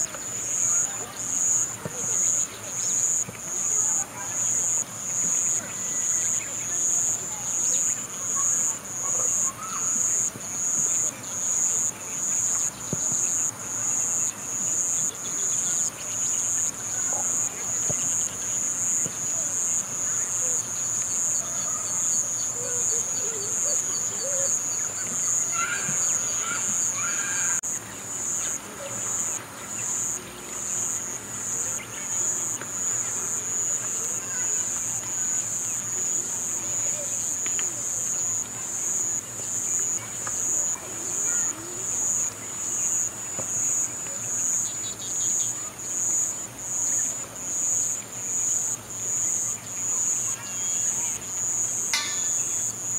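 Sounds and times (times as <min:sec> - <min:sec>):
faint chirps: 0:00.0 - 0:34.9, 0:49.2 - 0:52.9
insects trilling: 0:00.0 - 0:52.9.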